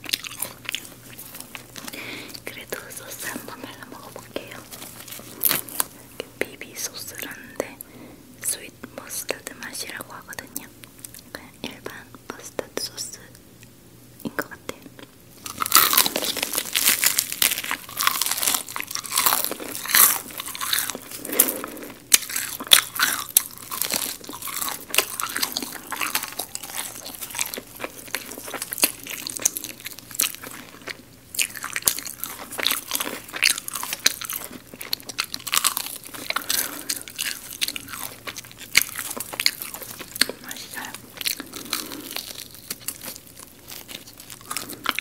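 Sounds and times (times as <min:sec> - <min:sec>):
crunching fried chicken: 0:00.0 - 0:06.2, 0:15.4 - 0:45.0
wet chewing: 0:00.0 - 0:06.3, 0:15.4 - 0:45.0.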